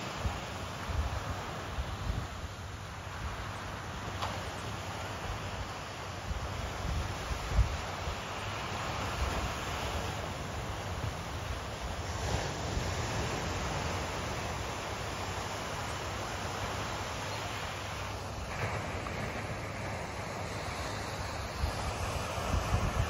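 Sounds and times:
ocean surf on beach: 0:00.0 - 0:23.0
wind buffeting microphone: 0:06.2 - 0:17.1, 0:17.7 - 0:23.0.

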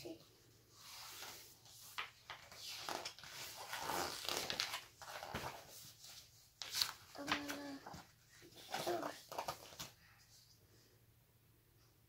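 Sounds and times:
book pages turning: 0:00.9 - 0:10.0.

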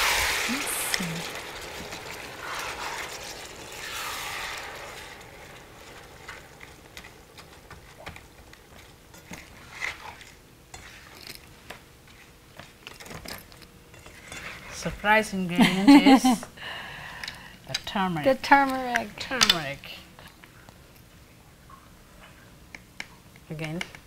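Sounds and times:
spatula scraping a frying pan: 0:00.0 - 0:11.4, 0:13.9 - 0:14.8
soft hissing from pan: 0:00.0 - 0:12.5.

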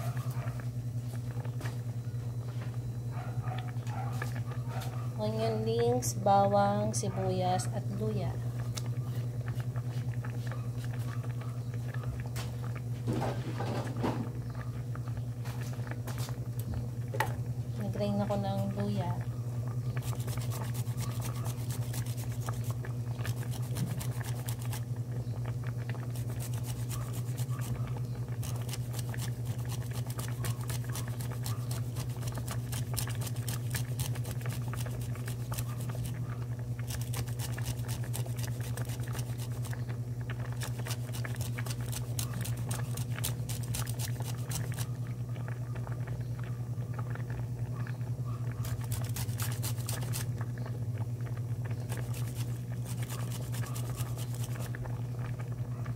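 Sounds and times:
steady low hum: 0:00.0 - 0:55.9
ginger scraping on grater: 0:20.0 - 0:24.8, 0:26.1 - 0:27.8, 0:28.4 - 0:36.1, 0:36.8 - 0:39.7, 0:40.6 - 0:44.9, 0:48.6 - 0:50.3, 0:51.9 - 0:54.7.

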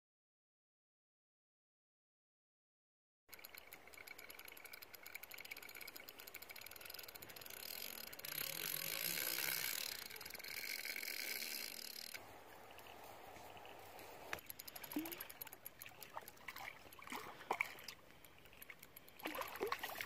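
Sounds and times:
fishing reel clicking rapidly: 0:03.3 - 0:12.2, 0:14.3 - 0:17.2, 0:18.2 - 0:19.8.

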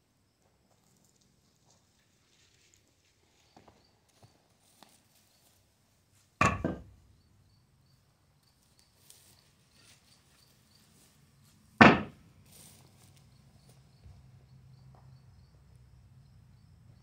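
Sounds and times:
loud knocks: 0:06.4 - 0:06.9, 0:11.8 - 0:12.2.

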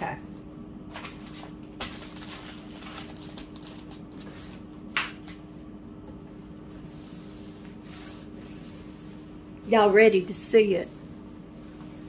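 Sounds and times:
steady low hum: 0:00.0 - 0:12.0
soft strokes on canvas: 0:06.3 - 0:12.0.

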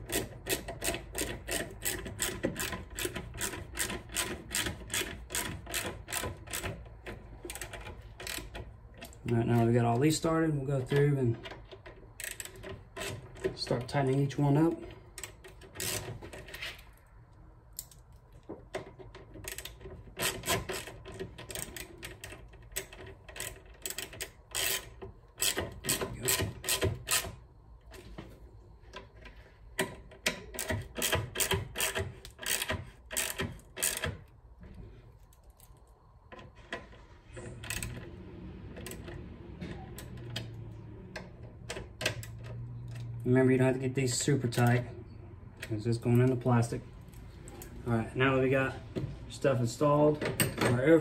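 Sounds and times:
hand ratchet clicking: 0:00.0 - 0:10.2, 0:10.9 - 0:14.4, 0:15.1 - 0:16.6, 0:18.8 - 0:27.4, 0:29.8 - 0:34.4.

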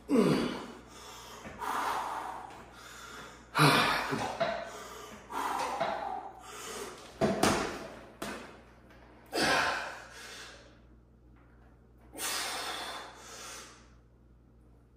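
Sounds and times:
man breathing heavily: 0:00.0 - 0:07.1, 0:09.3 - 0:10.8, 0:12.2 - 0:14.0.

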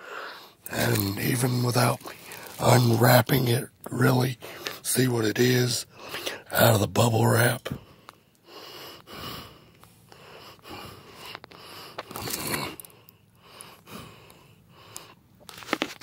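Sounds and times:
bubble wrap rustling: 0:01.8 - 0:03.0, 0:15.5 - 0:16.0.

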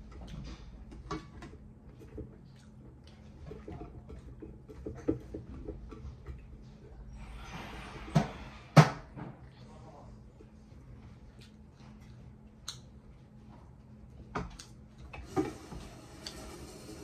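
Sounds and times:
chewing: 0:01.9 - 0:05.3.

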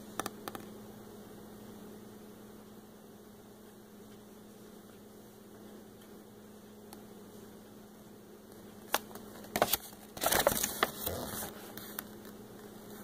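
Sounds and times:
low electrical hum: 0:00.0 - 0:13.0
paper leaflet crinkling: 0:08.9 - 0:12.2.

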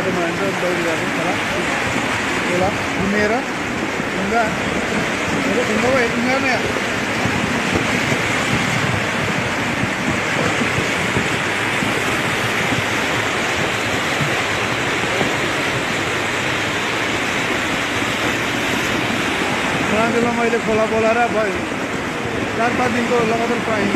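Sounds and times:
flash flood roaring: 0:00.0 - 0:23.9.

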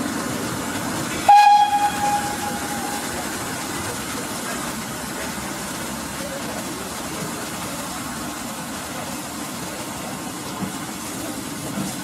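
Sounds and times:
steam locomotive whistle: 0:01.2 - 0:03.2.

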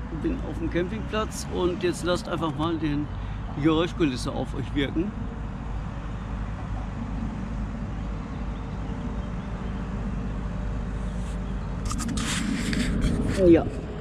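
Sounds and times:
road traffic rumble: 0:00.0 - 0:14.0
vehicle passing with tyre hiss: 0:09.8 - 0:14.0.

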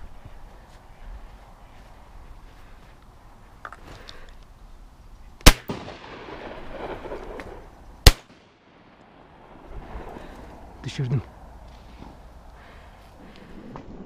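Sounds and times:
shotgun shots: 0:05.4 - 0:09.4
shot echo: 0:05.4 - 0:09.5.

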